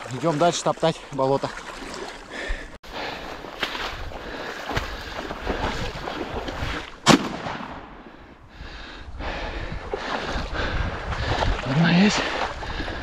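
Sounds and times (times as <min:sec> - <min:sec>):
shotgun shot: 0:07.0 - 0:08.0.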